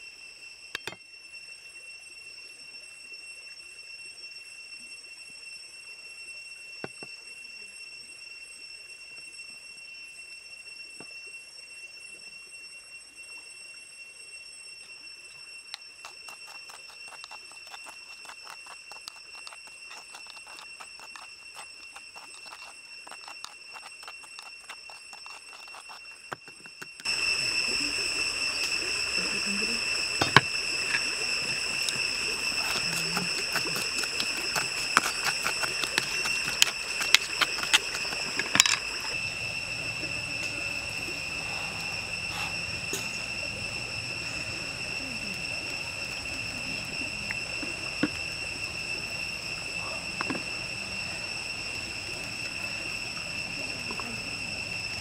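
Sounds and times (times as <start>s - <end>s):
high-pitched whine: 0.0s - 55.0s
chopsticks scraping in a bowl: 16.0s - 27.0s, 32.6s - 39.2s.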